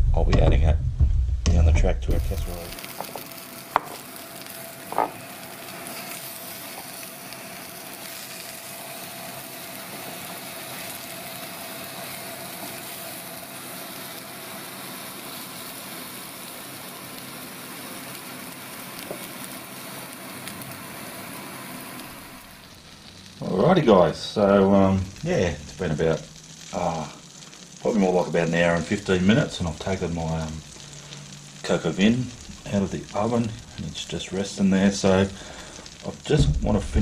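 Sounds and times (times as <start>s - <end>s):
mushrooms sizzling in butter: 2.1s - 37.0s.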